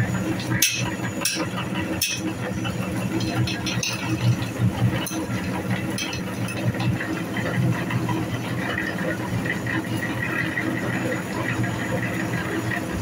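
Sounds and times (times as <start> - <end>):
meat grinder motor humming: 0.0 - 13.0
clicks and rattles: 3.0 - 5.3.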